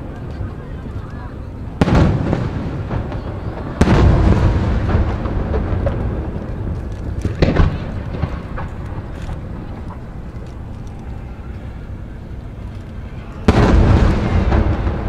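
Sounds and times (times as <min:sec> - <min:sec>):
rumbling echo: 0:00.0 - 0:15.0
firework shells booming: 0:01.8 - 0:10.7, 0:13.2 - 0:15.0.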